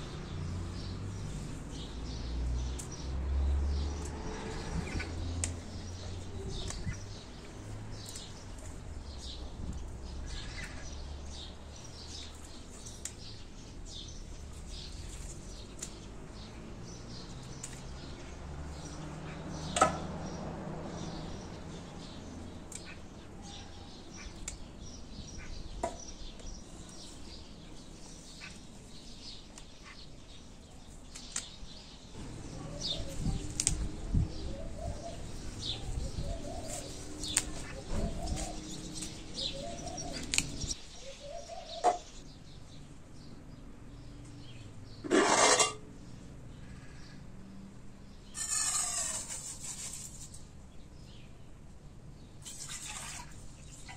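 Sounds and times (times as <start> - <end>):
small birds chirping: 0.0 - 45.1, 46.0 - 53.9
leafy plants rustling: 32.2 - 40.9.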